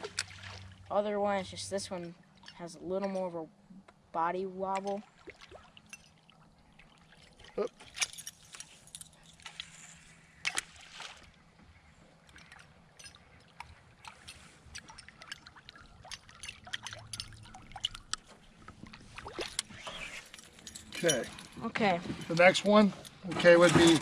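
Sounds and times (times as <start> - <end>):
lure slapping water surface: 0.0 - 0.8, 4.7 - 8.6, 9.3 - 11.4, 12.2 - 20.4.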